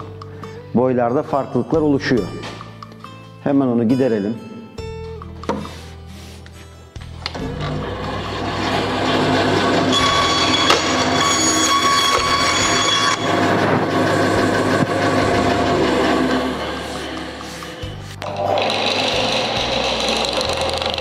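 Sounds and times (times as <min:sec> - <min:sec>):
bandsaw cutting wood: 0:07.3 - 0:21.0.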